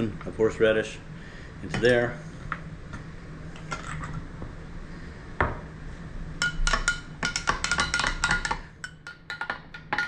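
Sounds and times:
spoon clinking while stirring: 6.4s - 10.0s
spoon tapping a glass: 6.4s - 10.0s.

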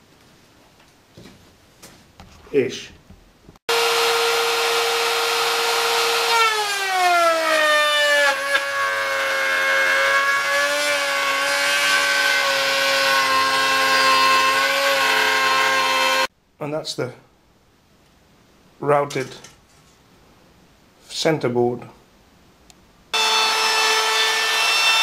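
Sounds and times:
electric router whining: 3.7s - 16.3s, 23.2s - 25.0s.

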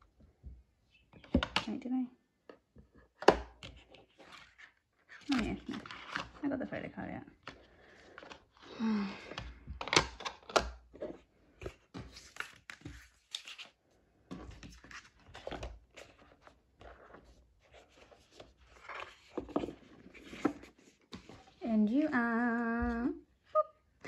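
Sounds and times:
clicks and taps of packaging: 2.5s - 3.8s, 9.2s - 10.9s
cardboard and plastic rustling: 3.5s - 6.7s, 7.3s - 21.6s.

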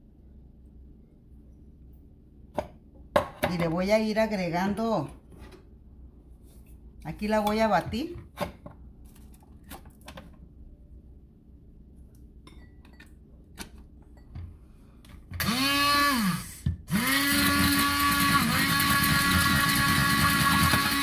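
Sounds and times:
immersion blender motor whirring: 15.4s - 21.0s.

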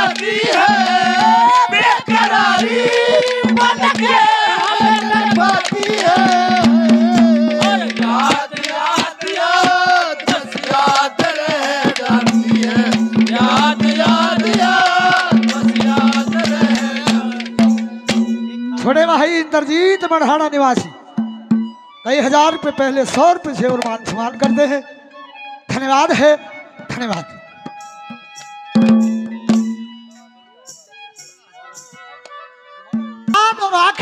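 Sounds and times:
hand drum strokes: 0.0s - 19.1s, 27.7s - 32.4s
wavering folk melody: 0.0s - 22.7s, 24.6s - 33.4s.

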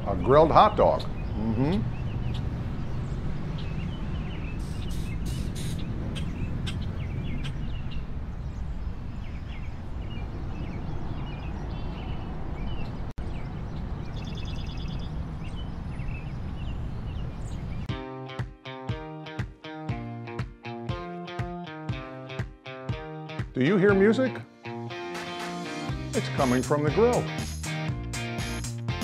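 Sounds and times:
birds chirping: 0.0s - 17.9s.

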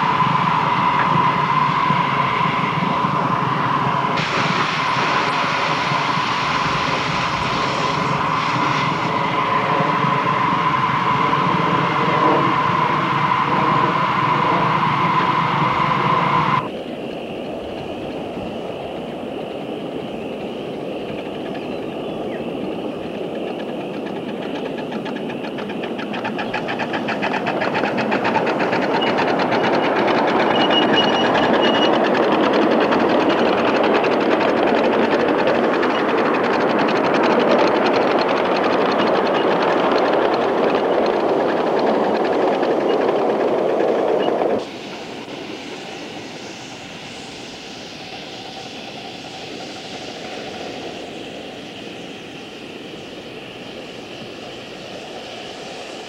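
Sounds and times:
steam locomotive passing: 0.0s - 56.0s.

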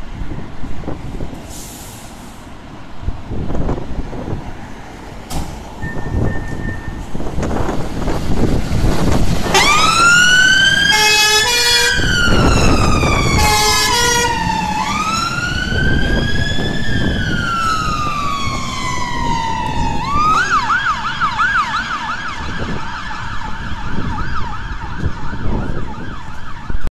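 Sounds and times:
truck engine rumble: 0.0s - 26.9s
fire engine siren wailing and yelping: 5.8s - 26.9s
truck horn blasts: 9.5s - 9.8s, 10.9s - 12.1s, 13.3s - 14.4s.

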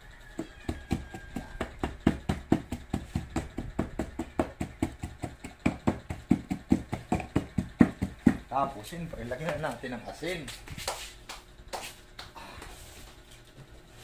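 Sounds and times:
pestle pounding in a mortar: 0.3s - 8.6s.

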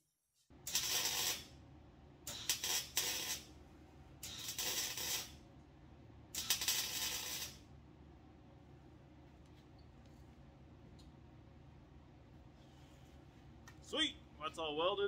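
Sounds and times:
welding arc crackling hiss: 0.6s - 1.6s, 2.2s - 3.6s, 4.2s - 5.5s, 6.3s - 7.7s.

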